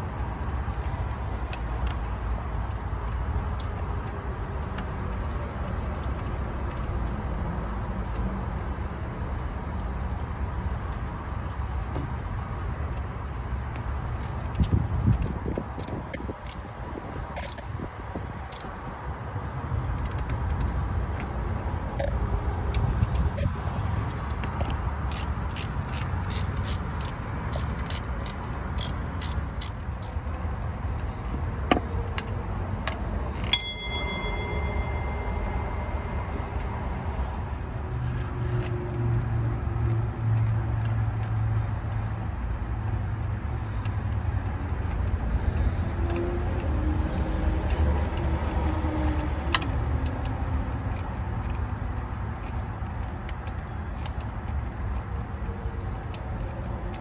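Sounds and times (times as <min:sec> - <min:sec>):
hand ratchet clicking: 0:13.7 - 0:17.7, 0:24.2 - 0:31.3, 0:38.0 - 0:57.0
metal clink: 0:33.4 - 0:35.9
low rumble: 0:34.0 - 0:38.1.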